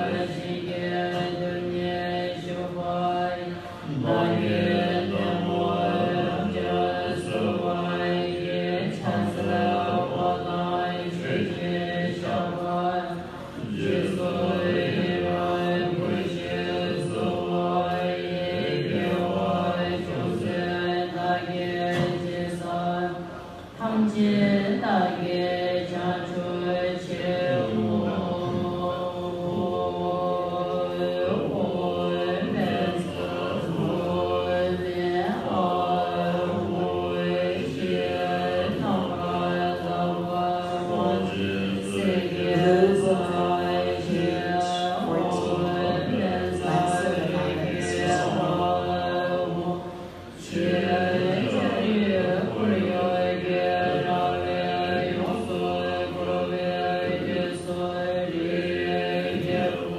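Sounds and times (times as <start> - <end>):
many voices chanting together: 0.0 - 59.9.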